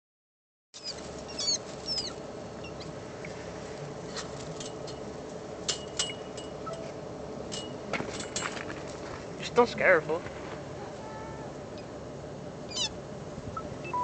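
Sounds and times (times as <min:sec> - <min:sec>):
rabbit squeaking: 0:00.8 - 0:03.4, 0:12.6 - 0:14.0
low background hum: 0:00.8 - 0:14.0.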